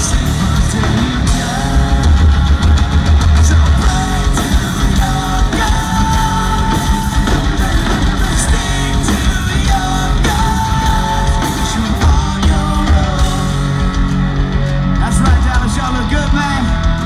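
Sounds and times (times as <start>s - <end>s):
bass guitar: 0.0s - 17.0s
drums: 0.0s - 17.0s
electric guitar: 0.0s - 17.0s
person singing: 0.0s - 17.0s.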